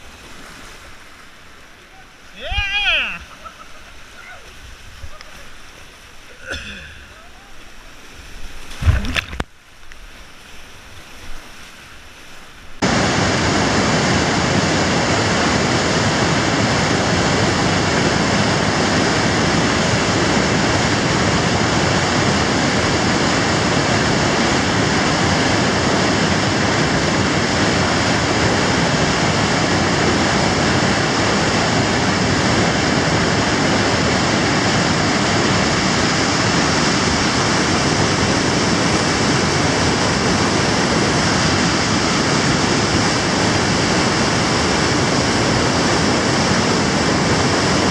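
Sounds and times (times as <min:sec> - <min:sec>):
kayak paddle splash: 0:00.0 - 0:47.9
rapids rushing: 0:00.0 - 0:47.9.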